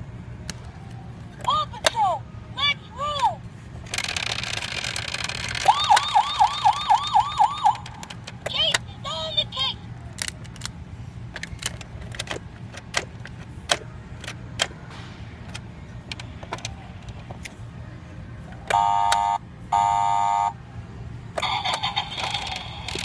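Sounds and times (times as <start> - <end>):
electronic toy honks: 18.7 - 20.6.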